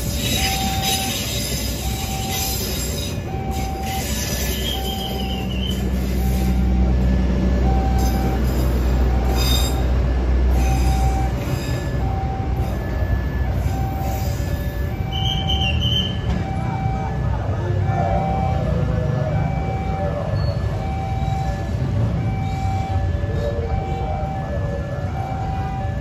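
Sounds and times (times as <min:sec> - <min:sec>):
high wheel squeal: 0:00.0 - 0:07.1, 0:07.8 - 0:16.3
diesel generator drone: 0:00.0 - 0:26.0
level-crossing warning bell: 0:00.0 - 0:26.0
train cars rolling on rails: 0:00.0 - 0:26.0.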